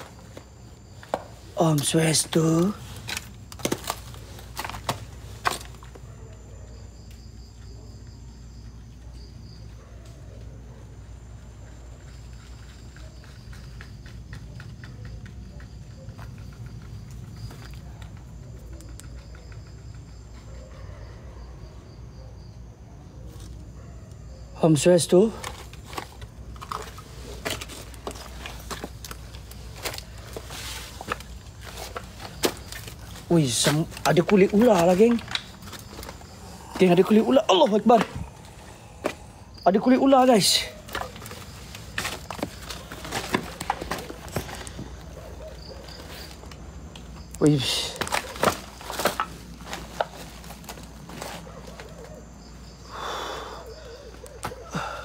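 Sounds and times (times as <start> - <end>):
leaves rustling: 0.0 - 6.0, 25.2 - 52.2
insect trilling: 24.3 - 55.0.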